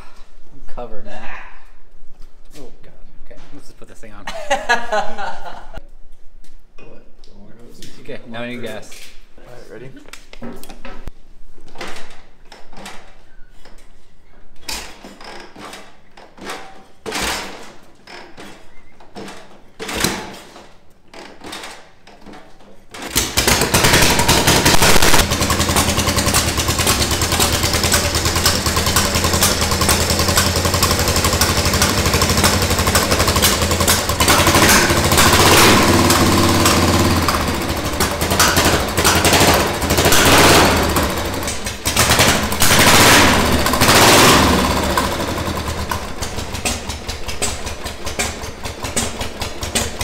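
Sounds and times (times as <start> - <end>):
motorcycle kick-start clanks: 14.7 - 50.0
motorcycle engine running: 23.2 - 50.0.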